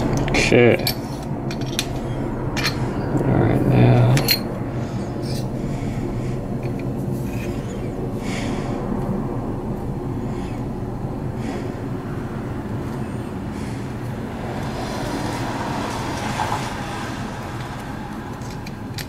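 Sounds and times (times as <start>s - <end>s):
low mechanical hum: 0.0s - 19.0s
small metal parts clicking: 0.1s - 2.0s.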